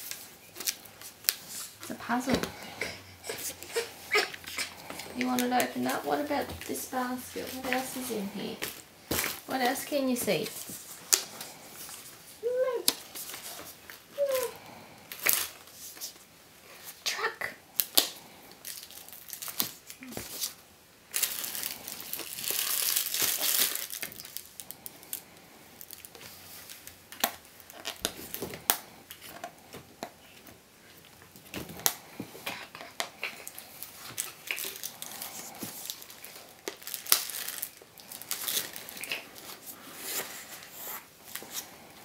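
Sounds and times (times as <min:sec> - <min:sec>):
plastic wrapping crinkling: 0:00.0 - 0:17.0, 0:17.7 - 0:42.0.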